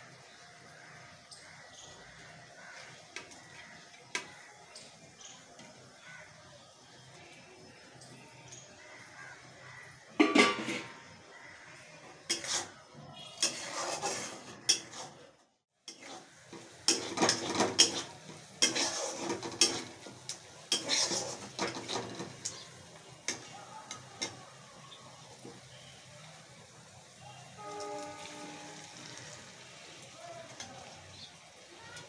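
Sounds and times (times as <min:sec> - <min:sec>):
steel spatula scraping a pan: 0:10.2 - 0:11.1, 0:12.2 - 0:15.3, 0:15.9 - 0:22.7, 0:27.6 - 0:29.7.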